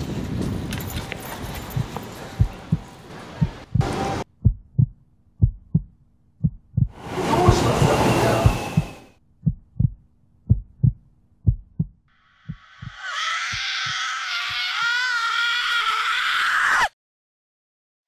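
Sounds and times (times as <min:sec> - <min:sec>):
heartbeat thumps: 0:01.7 - 0:14.0.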